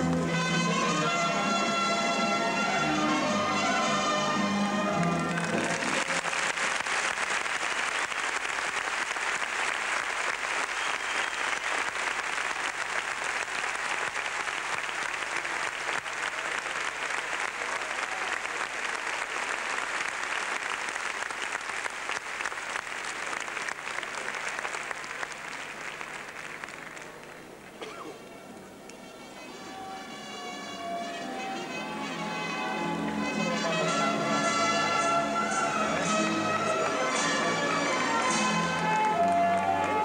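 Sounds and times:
audience applauding: 5.0 - 27.6, 38.2 - 40.0.

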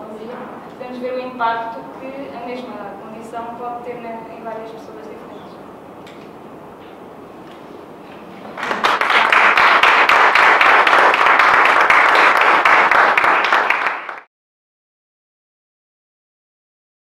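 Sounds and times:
audience applauding: 8.6 - 14.3.

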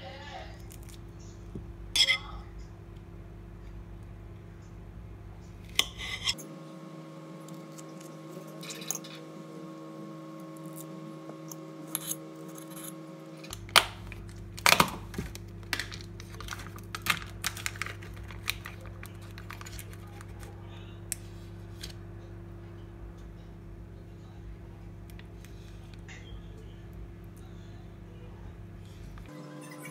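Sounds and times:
low hum: 0.0 - 29.9
plastic lid and foil crackling: 13.5 - 20.6.

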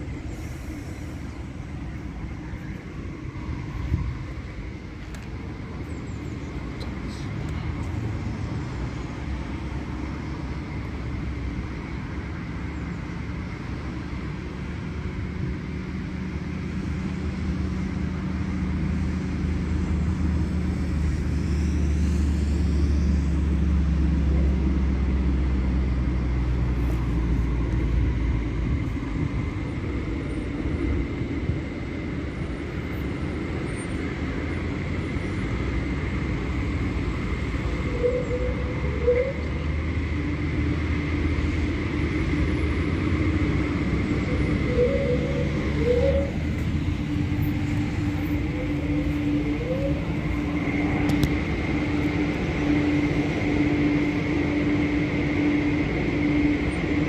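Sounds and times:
faint high whine: 0.0 - 13.3, 26.9 - 57.0
car wash machinery hum: 0.0 - 57.0.

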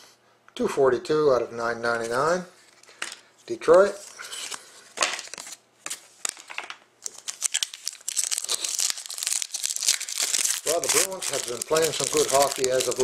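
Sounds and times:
cards and plastic sleeves shuffled: 1.9 - 13.0
foil pack crinkling and tearing: 4.1 - 13.0.

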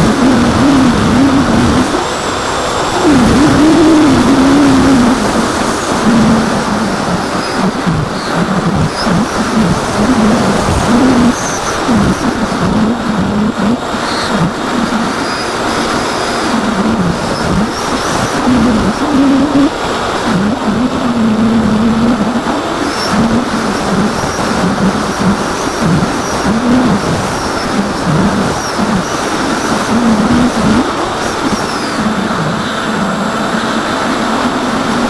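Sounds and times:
electric motor and propeller whine: 0.0 - 35.0
wind noise rushing: 0.0 - 35.0.

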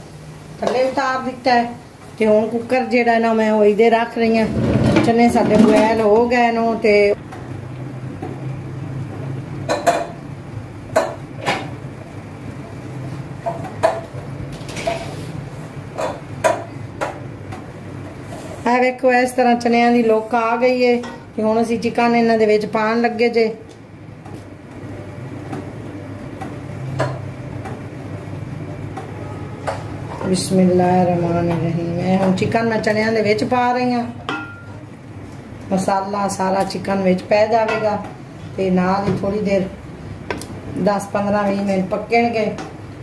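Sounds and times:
metal pots and utensils clinking: 34.2 - 34.8.

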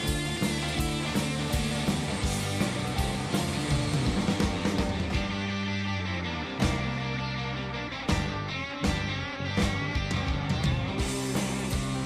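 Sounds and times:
drums hitting: 0.0 - 5.5, 8.1 - 12.0
rock band playing: 0.0 - 12.0.

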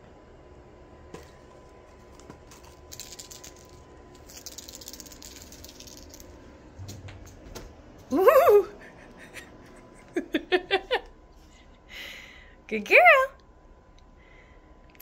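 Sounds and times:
cat toy rattling: 2.5 - 6.4.

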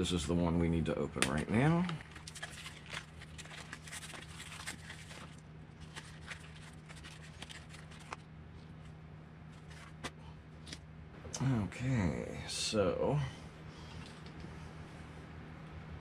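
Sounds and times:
plastic packaging crinkling: 1.3 - 10.9.

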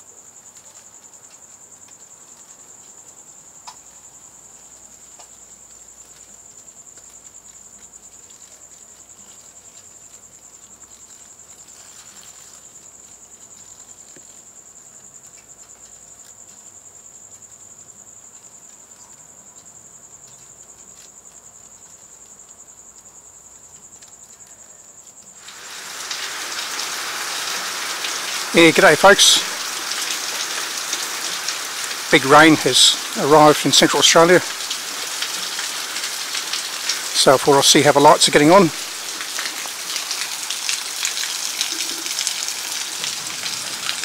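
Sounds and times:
night insects trilling: 0.0 - 44.0
heavy rain: 25.4 - 44.0.

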